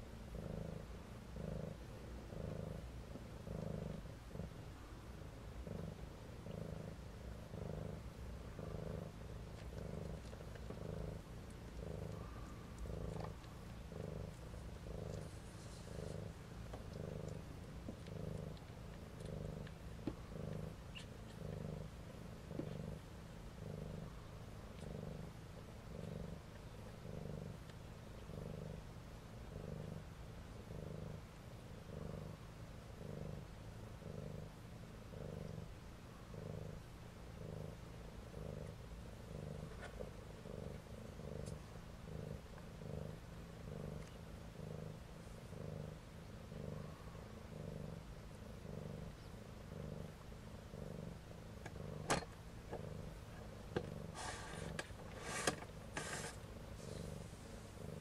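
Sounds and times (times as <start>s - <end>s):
cat purring: 0.0s - 58.0s
rustling: 5.8s - 23.1s, 38.6s - 45.5s, 46.4s - 58.0s.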